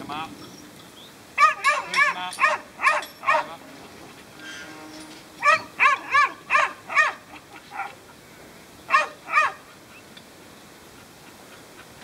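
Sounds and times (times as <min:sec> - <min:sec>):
dog barking: 0:01.4 - 0:03.6, 0:05.4 - 0:08.0, 0:08.9 - 0:09.6.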